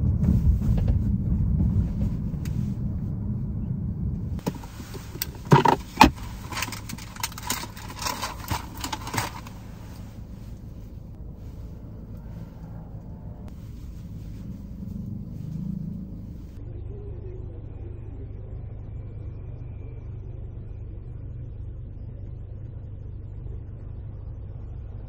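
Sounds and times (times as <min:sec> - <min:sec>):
car cabin rumble: 0:00.0 - 0:16.6.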